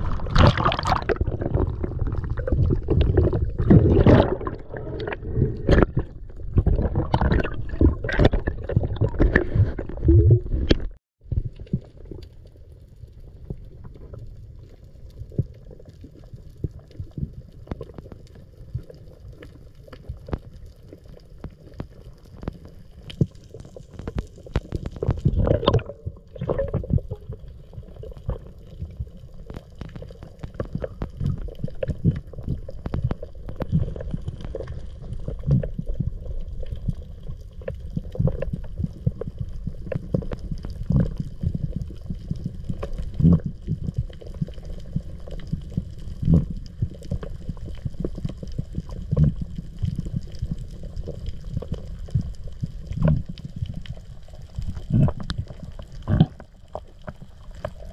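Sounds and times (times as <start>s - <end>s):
gurgling rush of water: 0.0s - 10.7s
muffled underwater rumble: 0.0s - 57.9s
underwater clicks and crackles: 0.0s - 57.9s.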